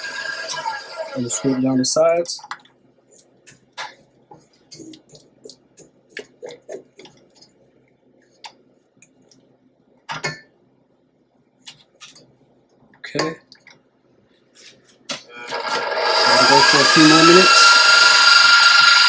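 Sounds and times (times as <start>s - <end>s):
stand mixer motor: 0.0s - 1.5s, 15.5s - 19.0s.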